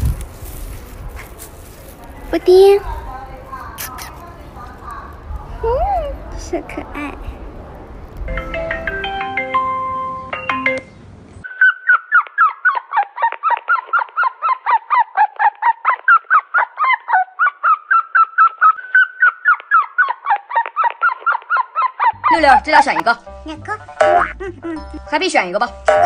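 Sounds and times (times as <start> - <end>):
bird calling rapidly: 3.6 - 5.2, 11.4 - 22.4.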